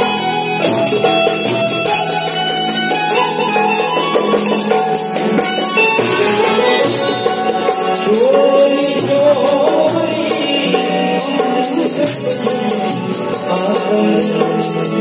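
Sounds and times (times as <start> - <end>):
harmonium: 0.0 - 15.0
tabla playing: 0.0 - 15.0
man singing: 6.0 - 15.0.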